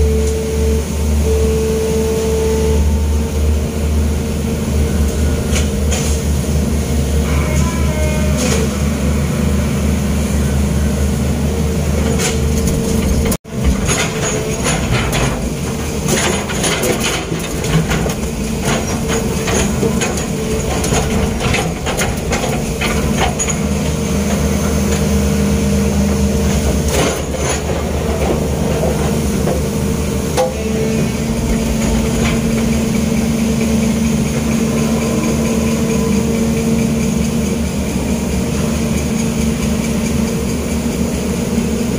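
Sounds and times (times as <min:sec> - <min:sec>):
diesel engine running under load: 0:00.0 - 0:41.9
knocks and clatter: 0:12.0 - 0:23.9, 0:31.2 - 0:37.6.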